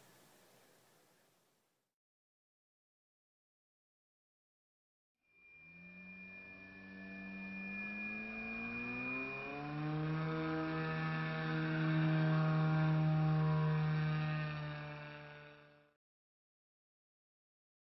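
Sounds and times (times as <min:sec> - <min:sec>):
electric motor and propeller whine: 0:05.4 - 0:16.0.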